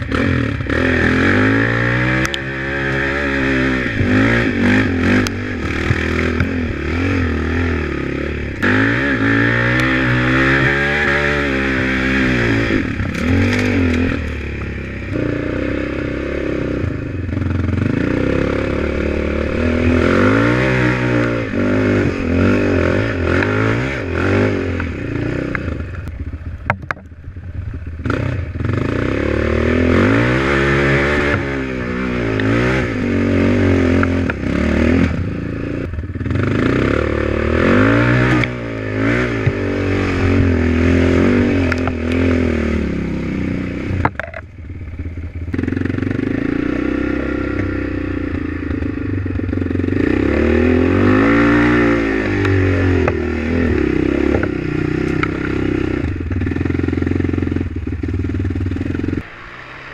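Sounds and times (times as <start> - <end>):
off-road vehicle engine revving: 0.0 - 59.9
rattles and knocks from riding: 13.0 - 14.7, 44.0 - 44.5.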